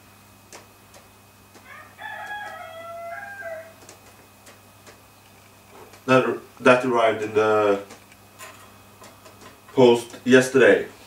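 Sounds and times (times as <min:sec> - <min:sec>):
drawn-out pitched call: 0:01.6 - 0:03.8.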